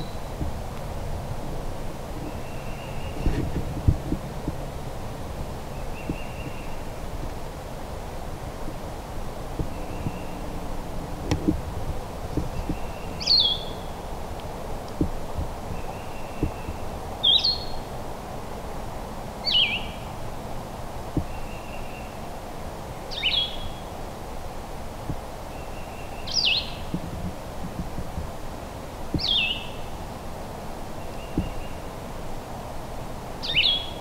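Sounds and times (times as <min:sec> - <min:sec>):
songbird singing: 0:00.0 - 0:34.0
woodland hiss: 0:00.0 - 0:34.0
faint low knocks: 0:09.4 - 0:13.0, 0:14.9 - 0:16.9, 0:31.3 - 0:31.8.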